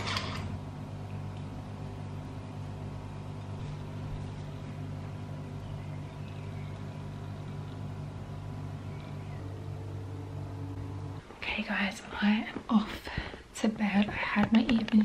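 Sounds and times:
machine humming: 0:00.0 - 0:12.5.

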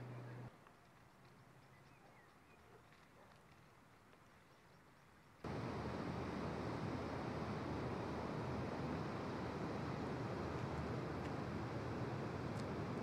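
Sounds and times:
loud steady rushing noise: 0:05.5 - 0:13.0.

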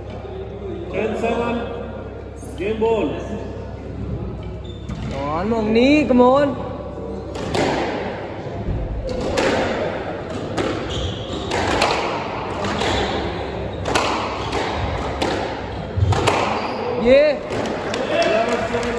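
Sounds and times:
squash ball hits echoing: 0:07.2 - 0:18.9.

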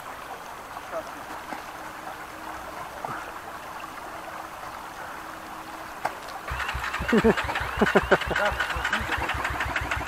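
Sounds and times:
creek water running: 0:00.0 - 0:10.0
motorcycle engine starting: 0:06.5 - 0:10.0.

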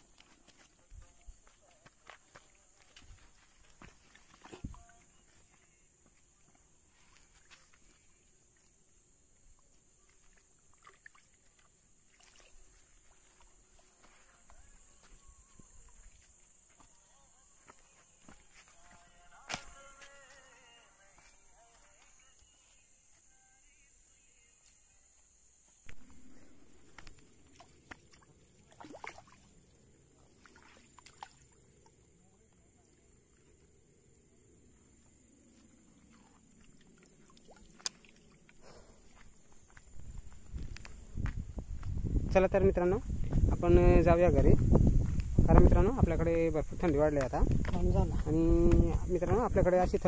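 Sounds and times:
water dripping: 0:09.4 - 0:14.1, 0:25.9 - 0:32.1, 0:35.9 - 0:39.3
water splashing: 0:09.5 - 0:14.3, 0:25.9 - 0:33.7, 0:35.4 - 0:39.5
light scuffs and clicks: 0:18.2 - 0:20.4.

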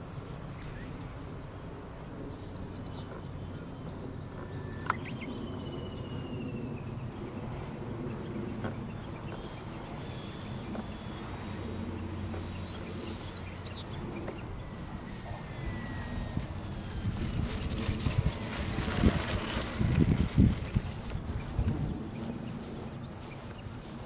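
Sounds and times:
bird chirping: 0:00.0 - 0:01.5, 0:02.2 - 0:07.2, 0:08.1 - 0:16.8
model plane motor whine: 0:03.0 - 0:23.1
plane rolling on grass: 0:07.2 - 0:24.0.

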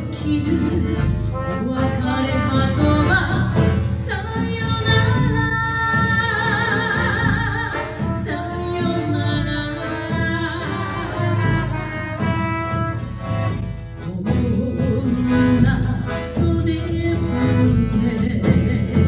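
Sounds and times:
woman singing with vibrato: 0:00.0 - 0:12.5, 0:14.0 - 0:19.0
accordion: 0:00.0 - 0:19.0
drums: 0:00.0 - 0:19.0
trumpet: 0:01.3 - 0:03.4, 0:10.6 - 0:13.6.

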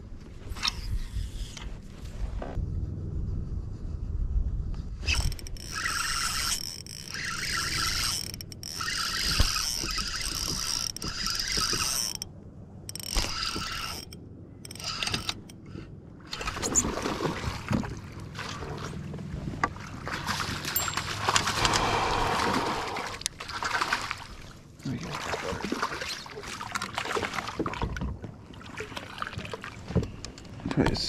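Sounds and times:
fishing reel gears whirring: 0:05.0 - 0:15.6
water splashing: 0:16.3 - 0:19.1, 0:19.8 - 0:29.9.

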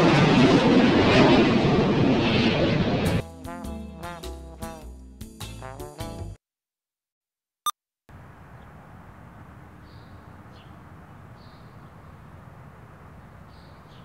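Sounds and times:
outdoor ambience hiss: 0:08.1 - 0:14.0.

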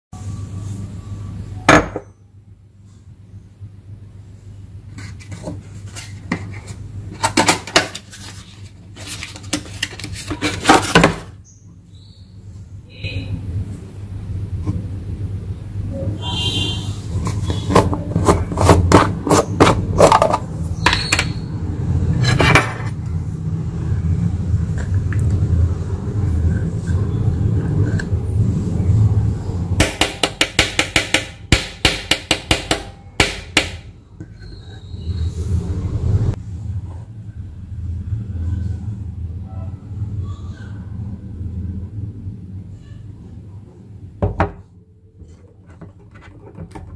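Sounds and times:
steady low hum: 0:00.2 - 0:46.9
low steady rumble: 0:19.2 - 0:34.3, 0:35.0 - 0:46.9.

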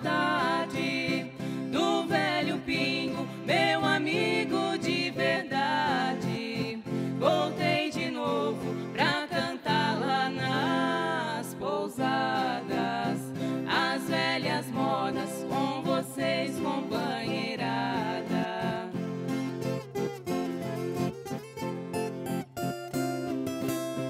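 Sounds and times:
women singing together: 0:00.0 - 0:18.9
folk guitars strummed and plucked: 0:00.0 - 0:24.0.

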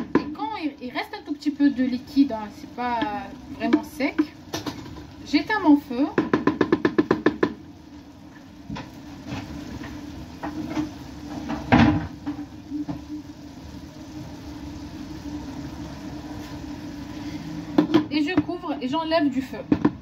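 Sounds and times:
pot simmering with soft pops: 0:00.0 - 0:18.9
steady low hum: 0:00.0 - 0:20.0
loud knock: 0:06.2 - 0:07.6.

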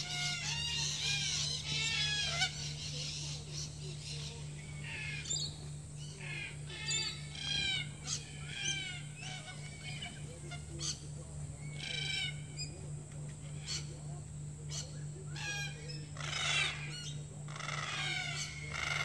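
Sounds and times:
cockatoos calling harshly: 0:00.0 - 0:19.0.

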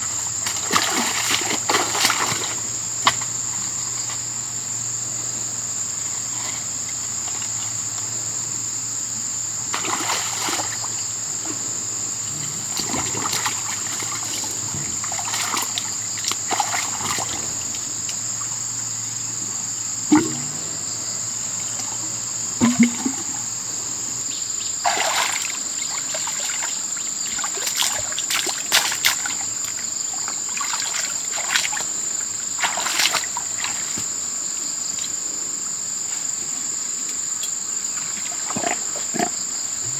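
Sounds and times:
muddy water splashing: 0:00.0 - 0:04.3, 0:09.7 - 0:19.0, 0:20.1 - 0:23.7, 0:24.8 - 0:34.2
insects droning: 0:00.0 - 0:39.9.

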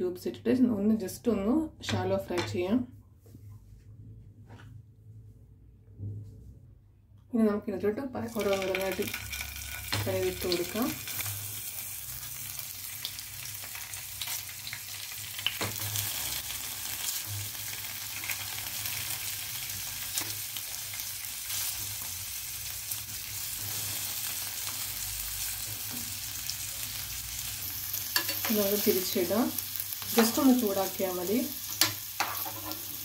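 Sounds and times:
cheese cubes sizzling in fat: 0:08.2 - 0:33.0.

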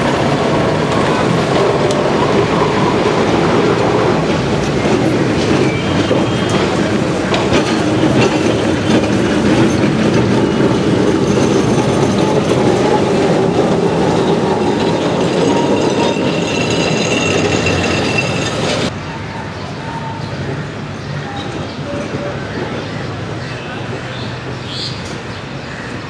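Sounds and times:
tram wheels rumbling on rails: 0:00.0 - 0:26.0
high wheel squeals: 0:04.6 - 0:20.6.

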